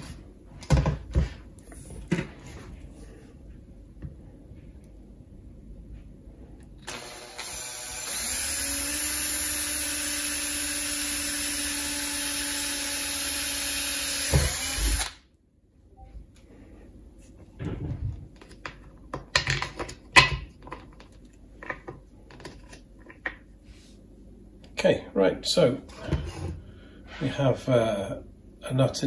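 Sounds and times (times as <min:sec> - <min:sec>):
power drill boring plastic pipe: 0:06.8 - 0:15.2.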